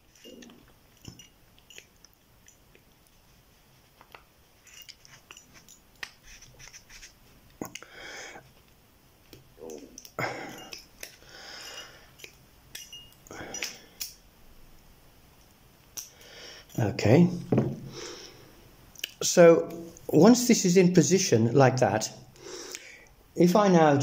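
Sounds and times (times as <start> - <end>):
small metallic clicks and scrapes: 0.0 - 3.2, 3.9 - 7.9
rustling: 0.0 - 7.7.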